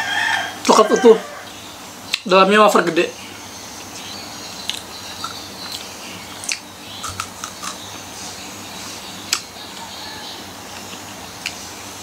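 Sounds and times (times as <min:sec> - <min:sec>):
chewing crunchy chocolate wafer: 0:04.6 - 0:08.0.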